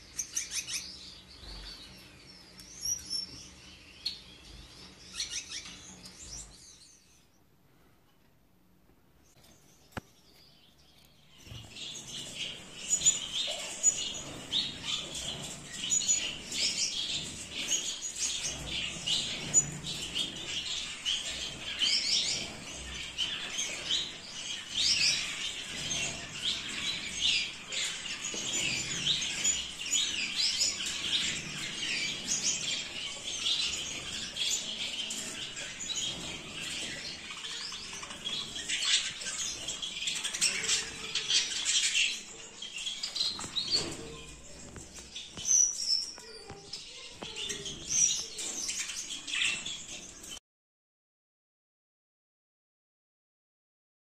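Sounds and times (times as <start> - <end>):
finches chirping: 9.7 - 50.0.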